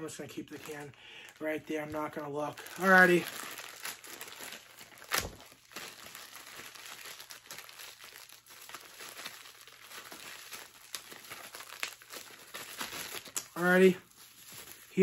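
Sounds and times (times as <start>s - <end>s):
plastic packaging crinkling: 0.0s - 15.0s.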